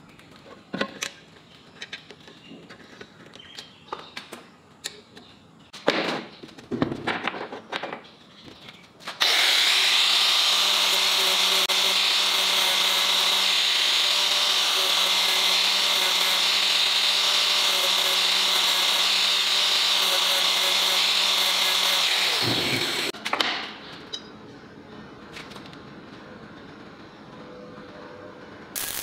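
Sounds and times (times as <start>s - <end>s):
angle grinder grinding steel: 9.2s - 23.1s.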